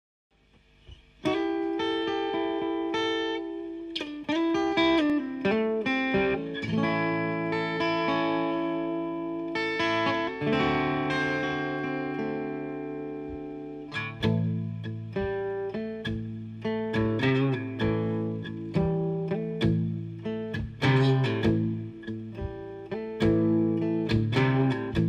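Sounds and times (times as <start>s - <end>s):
fingerpicked acoustic guitar: 0.8s - 25.0s.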